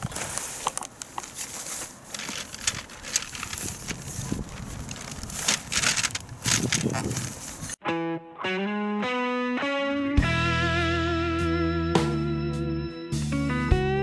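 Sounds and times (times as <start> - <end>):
tent fabric rustling: 0.0 - 7.8.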